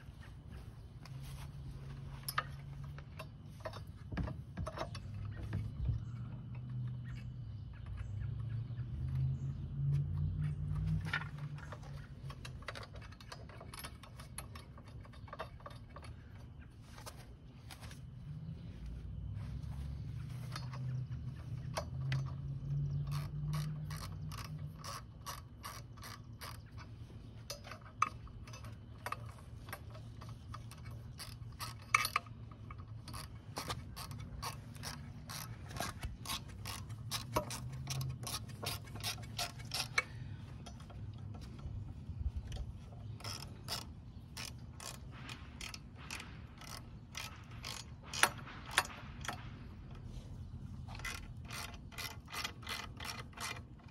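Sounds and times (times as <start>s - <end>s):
socket ratchet clicking: 20.5s - 26.9s, 27.5s - 41.8s, 42.5s - 50.1s, 50.8s - 53.9s.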